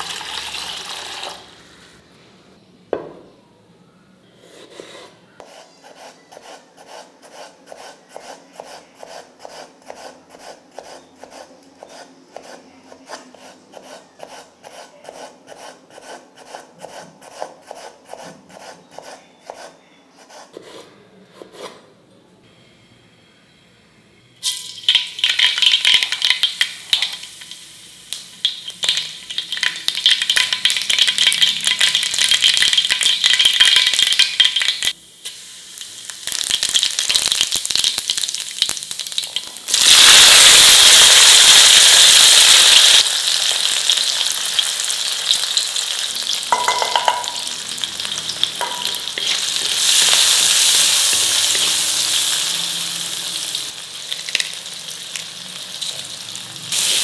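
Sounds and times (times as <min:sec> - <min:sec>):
knock on pot: 0:03.0 - 0:03.3, 0:46.6 - 0:47.4
food sizzling in hot oil: 0:24.4 - 0:57.0.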